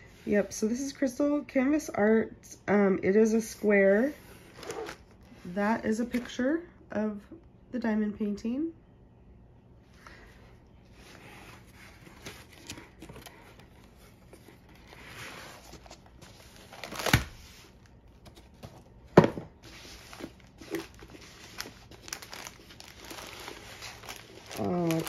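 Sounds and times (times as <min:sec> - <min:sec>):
cardboard and paper rustling: 0:03.9 - 0:06.4, 0:10.9 - 0:25.0.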